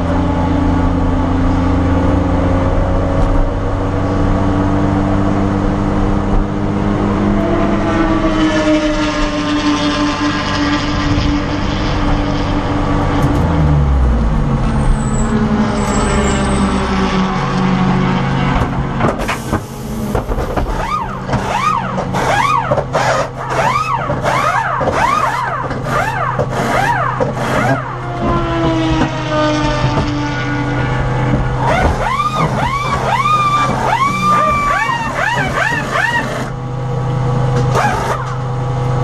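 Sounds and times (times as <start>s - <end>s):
pneumatic impact wrenches whirring: 19.1s - 28.4s, 31.6s - 36.6s, 37.6s - 38.4s.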